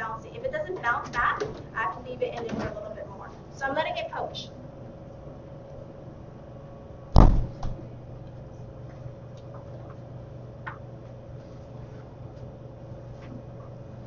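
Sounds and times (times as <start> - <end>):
steady low hum: 0.0 - 14.0
loud sharp knock: 7.1 - 7.8.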